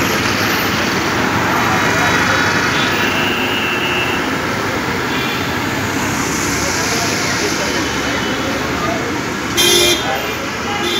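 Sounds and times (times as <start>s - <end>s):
passing vehicle engines: 0.0s - 10.9s
road traffic: 0.0s - 10.9s
people's voices: 0.2s - 10.9s.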